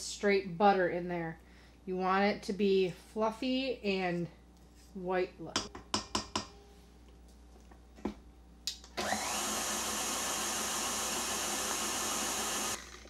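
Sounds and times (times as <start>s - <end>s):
stand mixer motor whirring: 9.0s - 13.0s.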